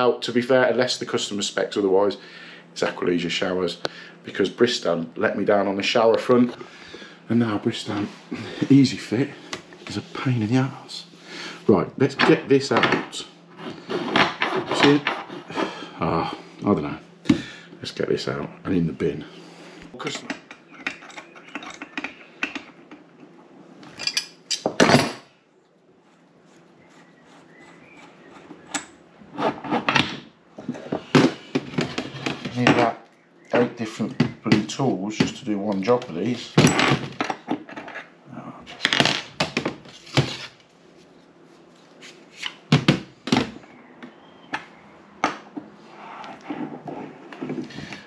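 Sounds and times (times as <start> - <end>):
metal tools clicking and clattering: 20.1 - 22.8, 23.8 - 25.2.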